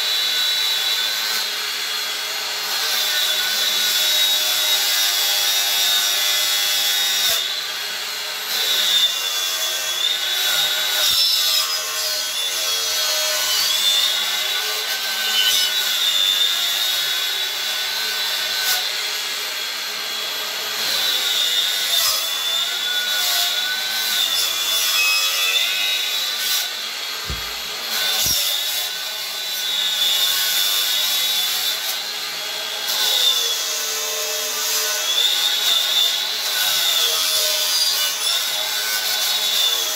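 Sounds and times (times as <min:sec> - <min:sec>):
angle grinder cutting wood: 0:02.6 - 0:37.9
low knocks: 0:27.3 - 0:27.7.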